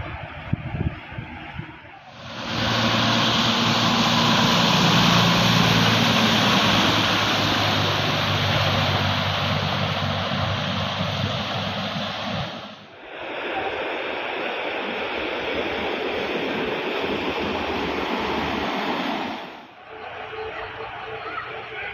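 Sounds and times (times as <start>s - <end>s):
water rushing from wheels: 0.0s - 21.9s
fire engine droning: 2.0s - 12.9s.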